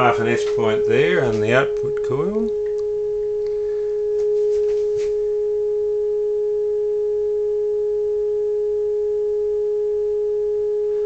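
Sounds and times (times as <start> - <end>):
steady radio tone: 0.0 - 2.6.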